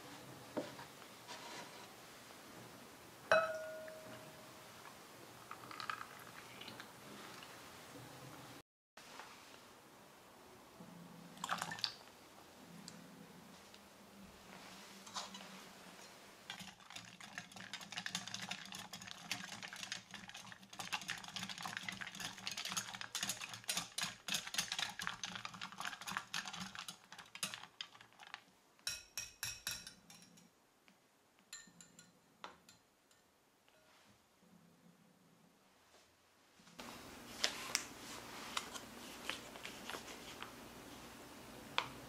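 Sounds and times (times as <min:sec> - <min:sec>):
whisk clattering in glass bowl: 0:16.5 - 0:28.2.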